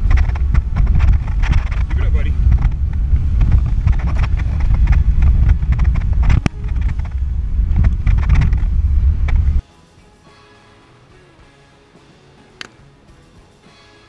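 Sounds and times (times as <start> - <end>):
knocks and rattles: 0.0 - 9.6
truck engine rumble: 0.0 - 9.6.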